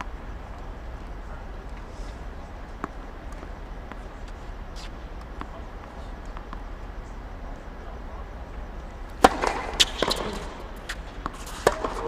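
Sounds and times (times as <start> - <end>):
tennis ball struck with racket: 0.0 - 0.7, 2.7 - 6.7, 9.1 - 12.0
steady low rumble: 0.0 - 12.0.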